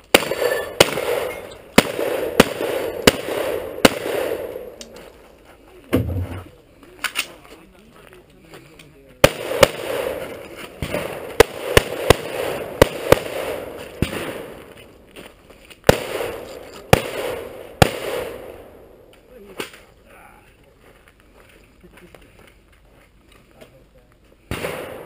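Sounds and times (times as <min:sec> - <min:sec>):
gunshots with echo: 0:00.0 - 0:04.9, 0:09.2 - 0:14.6, 0:15.9 - 0:18.8, 0:24.5 - 0:25.0.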